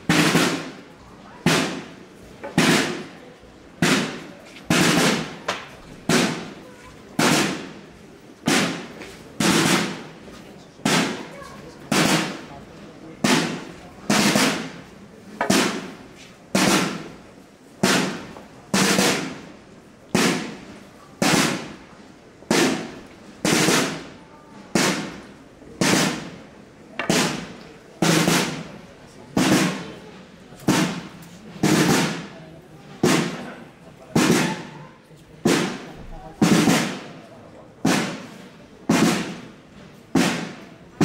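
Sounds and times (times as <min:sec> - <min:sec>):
slow drum beats: 0:00.0 - 0:00.8, 0:01.4 - 0:07.8, 0:08.4 - 0:10.2, 0:10.8 - 0:11.2, 0:11.9 - 0:21.9, 0:22.5 - 0:28.8, 0:29.4 - 0:30.0, 0:30.6 - 0:32.3, 0:33.0 - 0:33.5, 0:34.2 - 0:34.7, 0:35.4 - 0:37.2, 0:37.8 - 0:38.3, 0:38.9 - 0:39.5, 0:40.1 - 0:40.7.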